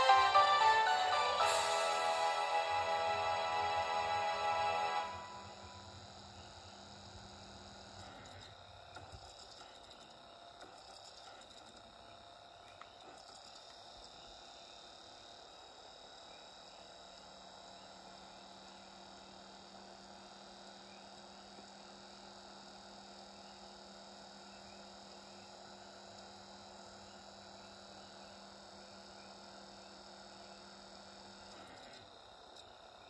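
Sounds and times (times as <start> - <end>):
held tones: 0.0 - 6.3
faint electrical hum: 0.0 - 33.0.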